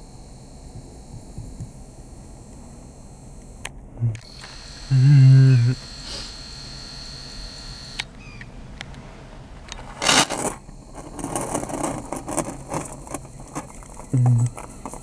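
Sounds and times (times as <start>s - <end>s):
faint high whine: 0.0s - 15.0s
sharp camera click: 4.2s - 4.6s, 10.0s - 10.5s
rubbing and tapping on camera: 10.1s - 15.0s.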